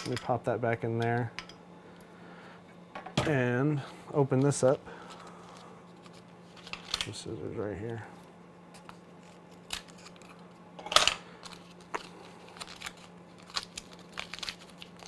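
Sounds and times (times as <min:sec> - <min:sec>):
foil wrapper crinkling and tearing: 0:08.8 - 0:10.5, 0:11.3 - 0:15.0
scissors snipping foil: 0:09.5 - 0:10.4, 0:11.4 - 0:15.0.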